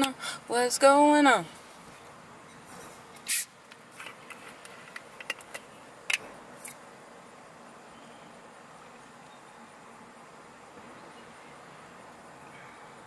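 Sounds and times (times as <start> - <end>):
short scrape: 2.7 - 3.5.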